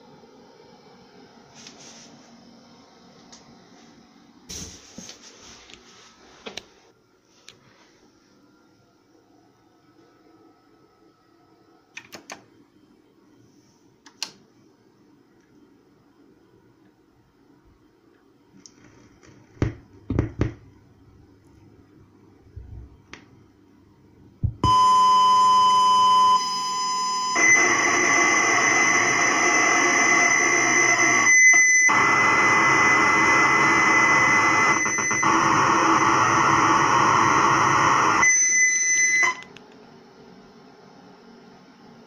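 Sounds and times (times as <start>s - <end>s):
loud steady tone: 24.4s - 39.6s
noisy data signal: 24.5s - 39.5s
steady high whistle: 24.6s - 32.0s.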